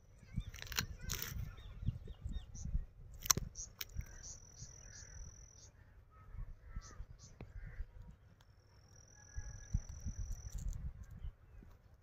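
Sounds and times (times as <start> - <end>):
wind rumbling on microphone: 0.0 - 5.3, 6.2 - 8.4, 9.3 - 12.0
short bird calls: 0.2 - 7.9
high insect trill: 8.8 - 10.8.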